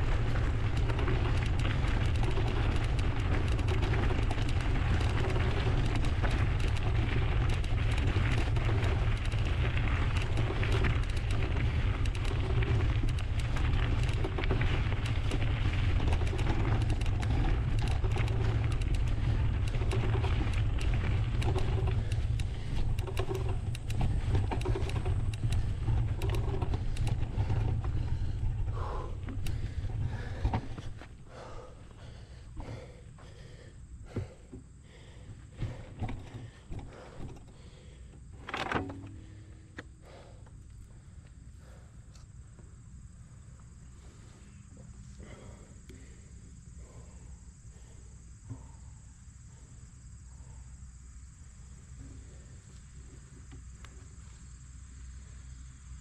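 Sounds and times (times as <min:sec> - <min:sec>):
bike rattling: 0:00.0 - 0:42.0
tyres rolling over trail: 0:00.0 - 0:56.0.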